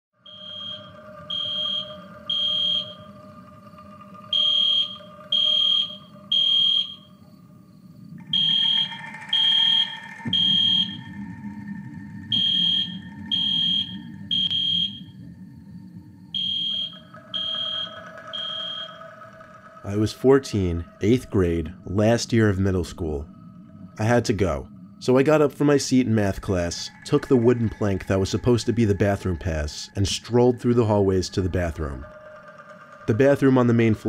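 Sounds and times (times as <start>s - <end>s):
fire alarm beeping: 0.2s - 3.4s, 4.2s - 7.2s, 8.2s - 11.3s, 12.3s - 15.2s, 16.3s - 20.2s
low steady drone: 0.2s - 34.0s.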